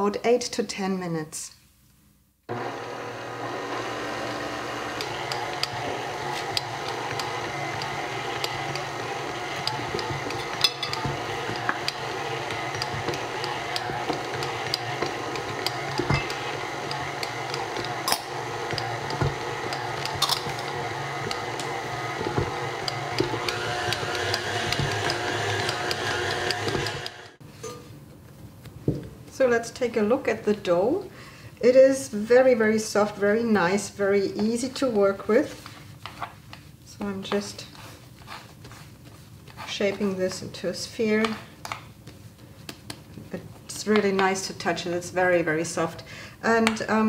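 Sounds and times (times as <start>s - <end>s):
stand mixer kneading dough: 2.5s - 27.4s.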